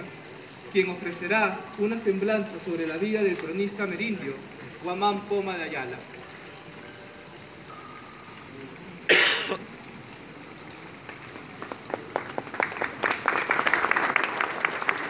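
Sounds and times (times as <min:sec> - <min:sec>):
person coughing: 0:09.1 - 0:09.6
audience applause: 0:09.7 - 0:15.0.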